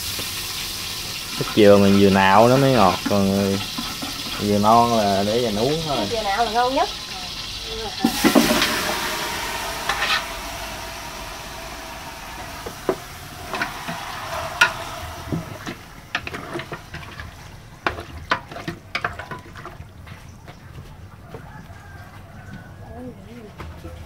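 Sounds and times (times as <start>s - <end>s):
meat sizzling in a pot: 0.0s - 20.0s
utensil scraping a pot: 1.3s - 19.8s.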